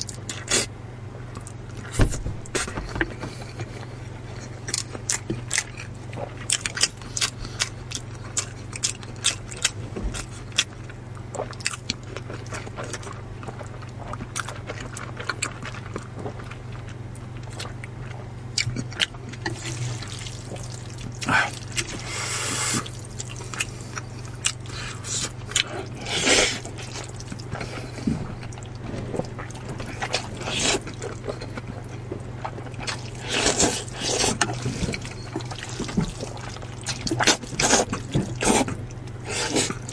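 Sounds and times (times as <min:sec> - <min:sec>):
steady low hum: 0:00.0 - 0:39.9
slurping noodles: 0:32.9 - 0:39.9.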